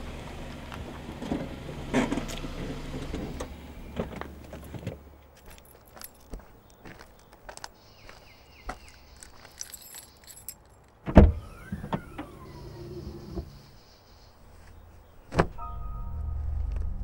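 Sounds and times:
footsteps in hard shoes: 4.1s - 10.4s
low hum: 15.5s - 17.0s
sweeping tones: 15.6s - 17.0s.

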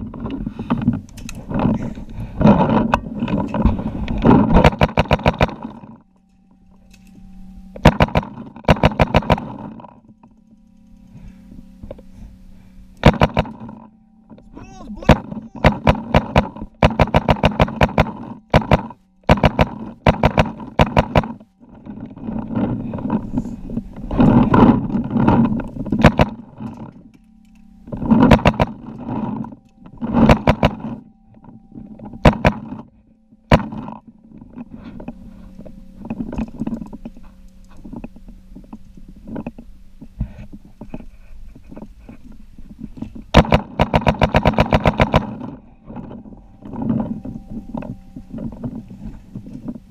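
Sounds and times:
paintball markers firing rapidly: 4.5s - 5.7s, 7.8s - 9.7s, 13.0s - 13.7s, 15.1s - 21.4s, 26.0s - 26.4s, 28.1s - 28.8s, 30.2s - 31.0s, 32.2s - 32.8s, 33.5s - 34.0s, 43.4s - 45.5s.

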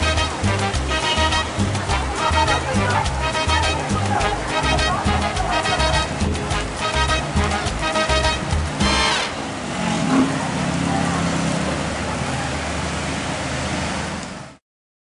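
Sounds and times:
music with steady beat: 0.0s - 9.3s
traffic on wet road: 0.0s - 14.6s
voices: 0.9s - 13.5s.

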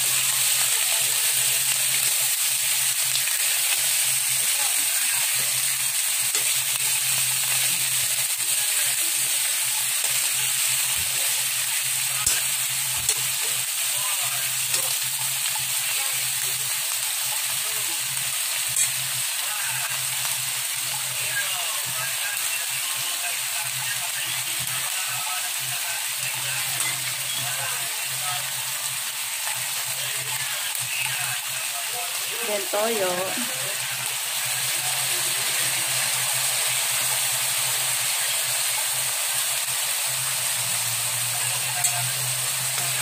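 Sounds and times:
food sizzling in a wok: 0.0s - 43.0s.

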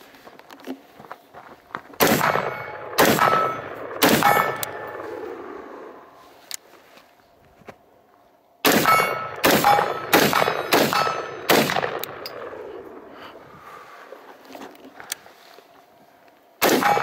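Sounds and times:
rifle shots echoing: 2.0s - 6.0s, 8.6s - 13.1s, 16.6s - 17.0s
steel targets ringing: 2.3s - 5.0s, 8.7s - 11.5s, 16.7s - 17.0s.

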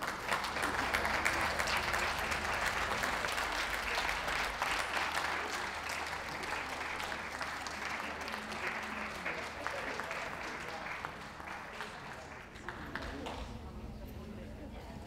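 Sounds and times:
crowd applauding: 0.0s - 13.7s.

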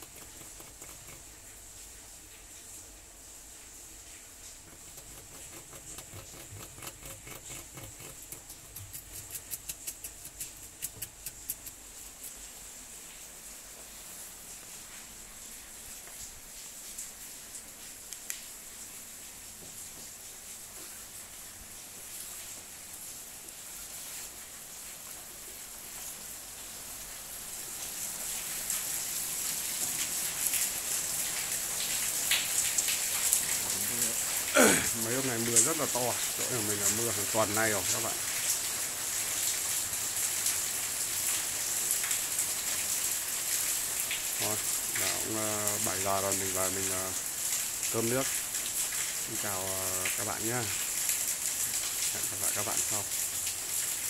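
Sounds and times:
drip ticks: 0.0s - 1.3s, 4.7s - 12.4s
rat gnawing and crunching plant: 0.0s - 1.6s, 4.4s - 12.4s
heavy rain on tiles: 0.0s - 54.0s.

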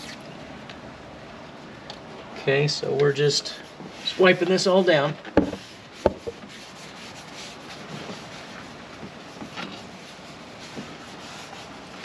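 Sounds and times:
pad scrubbing metal panel: 5.4s - 12.0s.

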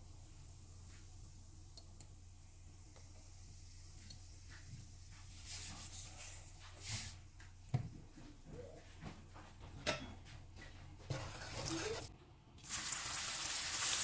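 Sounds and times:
hot oil sizzling in a wok: 12.6s - 14.0s.

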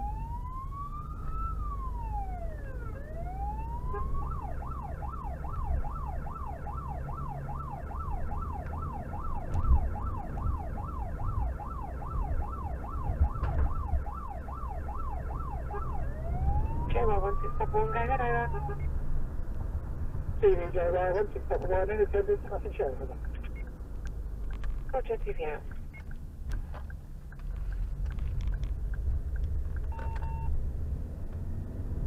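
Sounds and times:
electronic siren wail and yelp: 0.0s - 18.9s
engine and road noise: 0.0s - 32.0s.

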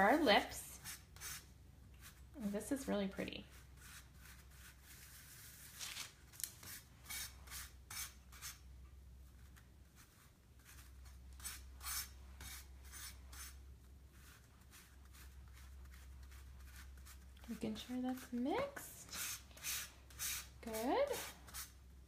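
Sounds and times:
knife scraping powder on paper: 6.5s - 8.6s, 10.6s - 13.6s, 19.0s - 21.8s.

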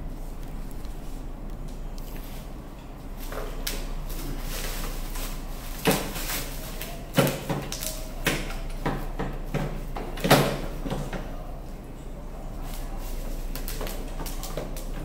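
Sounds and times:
bubble wrap crinkling: 3.2s - 8.2s.

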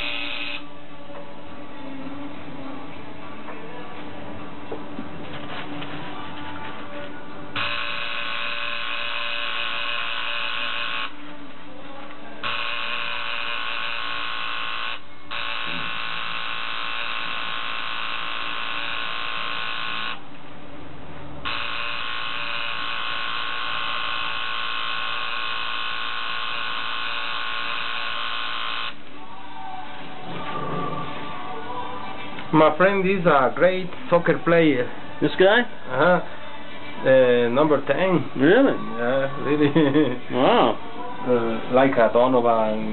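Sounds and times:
tattoo machine buzzing: 0.0s - 0.6s, 7.6s - 11.2s, 12.4s - 20.2s, 21.4s - 29.0s.

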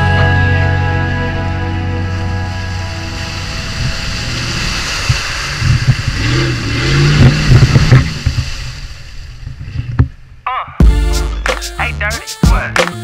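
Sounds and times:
truck engine revving: 0.0s - 9.3s
tires churning through mud: 1.8s - 10.4s.

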